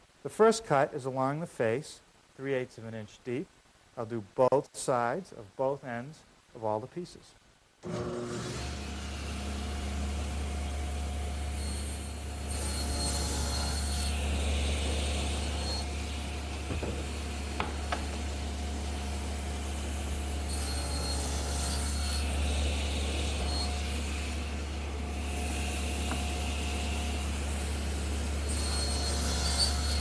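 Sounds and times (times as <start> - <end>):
table saw humming: 7.8 - 30.0
blade cutting wood: 11.5 - 30.0.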